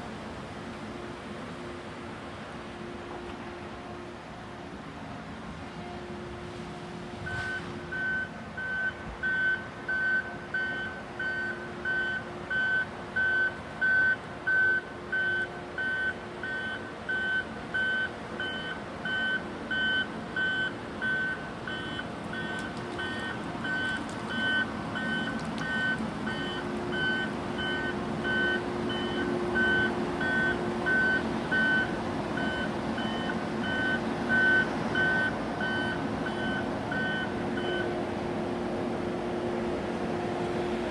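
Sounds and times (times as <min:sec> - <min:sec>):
diesel engine running: 0:00.0 - 0:40.9
backup alarm beeping: 0:07.3 - 0:37.9.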